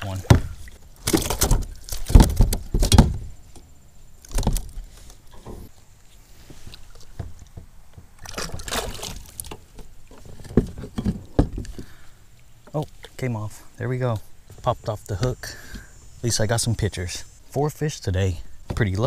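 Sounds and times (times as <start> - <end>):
scuffling in kayak: 8.2 - 9.5.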